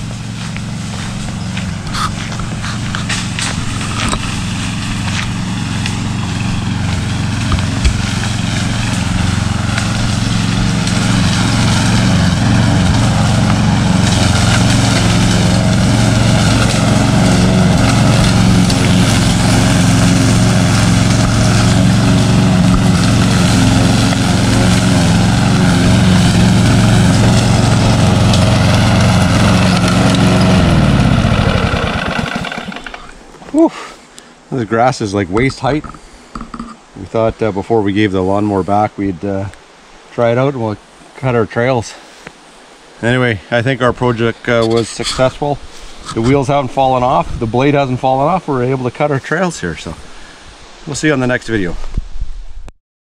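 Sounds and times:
engine winding down: 0.0s - 33.7s
lawn mower engine running: 0.0s - 33.8s.

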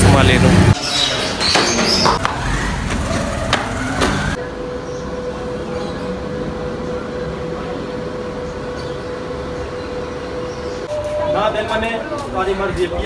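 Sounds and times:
steady tonal hum: 4.3s - 13.0s.

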